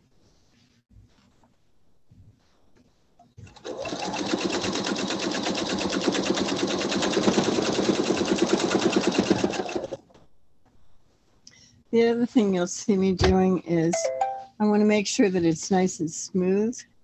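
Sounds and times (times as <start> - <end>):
sewing machine stitching fast: 3.4 - 10.0.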